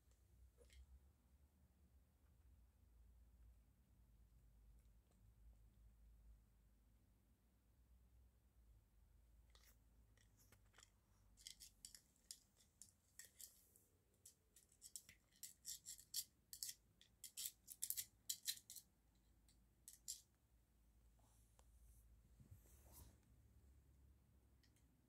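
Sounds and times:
treats rattling in plastic toy: 10.7 - 13.6, 14.6 - 18.9, 19.9 - 20.2.

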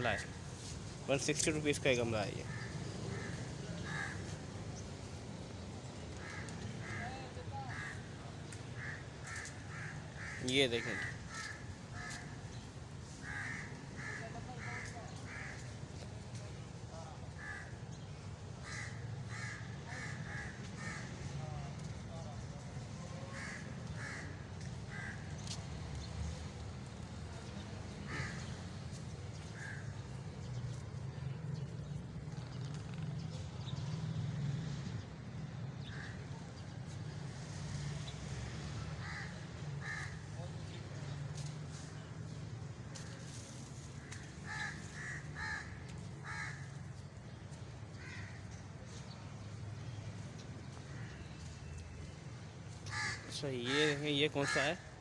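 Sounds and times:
crows cawing: 2.4 - 4.5, 5.9 - 15.9, 17.3 - 21.9, 23.1 - 25.7, 26.9 - 30.6, 35.8 - 36.7, 38.8 - 40.4, 42.9 - 48.6, 50.7 - 51.8, 52.7 - 55.0.

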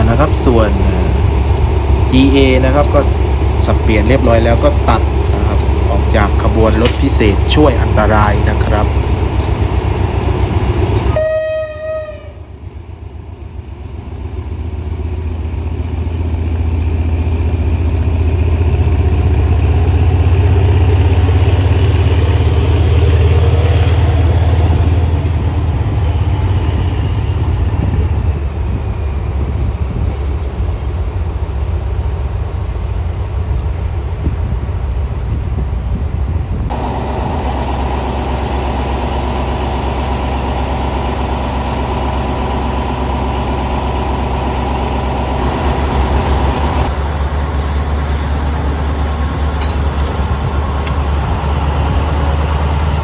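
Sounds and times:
locomotive engine rumble: 0.0 - 53.0
locomotive horn toot: 11.0 - 12.5.

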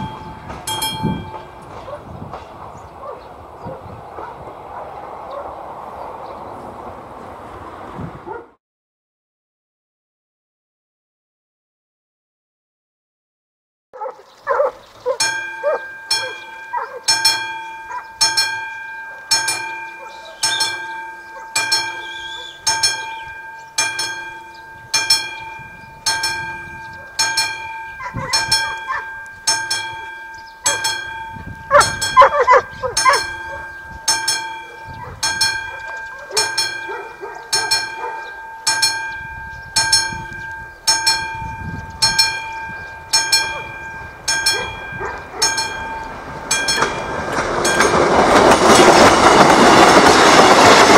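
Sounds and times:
level crossing warning bell: 0.0 - 3.1, 15.0 - 50.9
low rumble of train: 0.0 - 8.6, 14.4 - 50.9.

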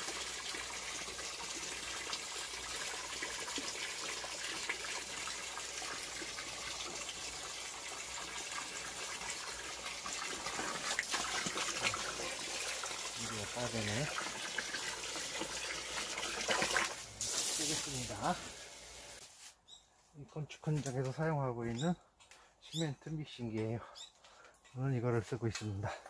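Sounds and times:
hose water pouring into bucket: 0.0 - 19.3.

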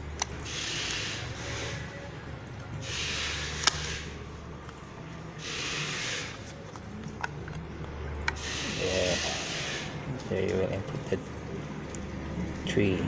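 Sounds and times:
sharp plastic clicks: 3.5 - 4.8.

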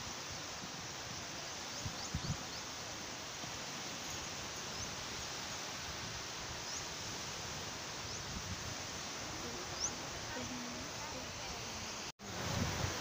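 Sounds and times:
waves washing onto beach: 0.0 - 13.0
wind on microphone: 1.7 - 2.6, 5.9 - 11.3, 12.2 - 13.0.

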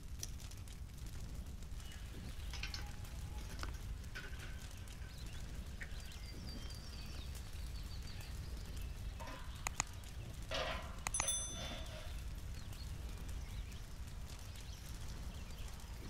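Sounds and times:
low outdoor rumble: 0.0 - 16.0
metal grill clinking: 10.4 - 12.3
metal clank: 10.5 - 12.2.

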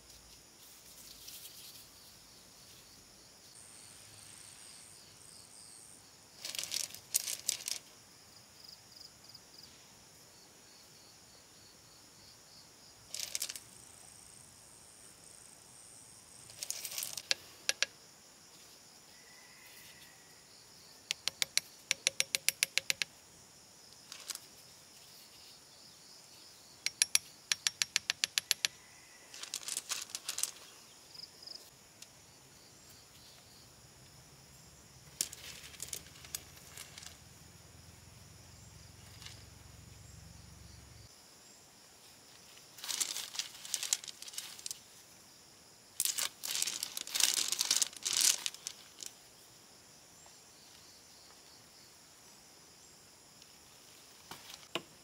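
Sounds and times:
insects chirring: 0.0 - 55.0
stone pebbles clicking: 6.4 - 7.9, 13.1 - 13.7, 16.4 - 17.9, 21.1 - 23.1, 24.0 - 24.5, 26.9 - 30.7, 35.1 - 37.2, 42.8 - 44.8, 46.0 - 49.1
taps on stone: 17.2 - 17.9, 21.1 - 23.1, 26.8 - 28.8.

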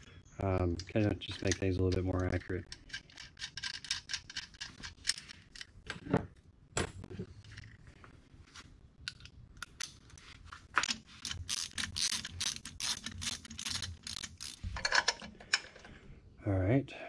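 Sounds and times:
torque wrench clicking: 11.2 - 14.6.

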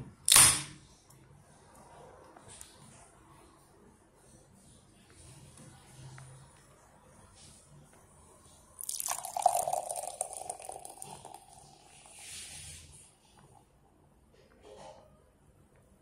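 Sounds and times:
beer splashing into a glass: 8.8 - 12.0
beer fizzing: 8.8 - 13.0.

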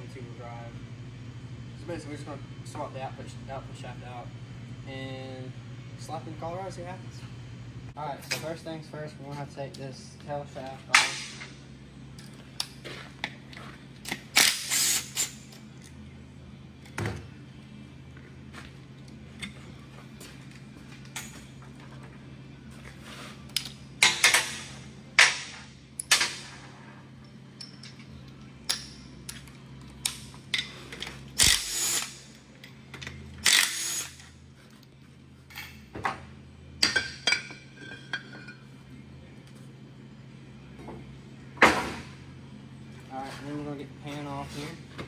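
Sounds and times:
steady low hum: 0.0 - 45.0
tools and parts clicking: 27.2 - 34.9.

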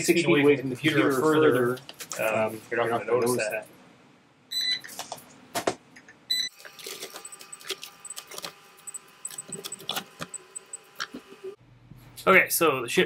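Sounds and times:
barcode scanner beep: 6.3 - 10.9.

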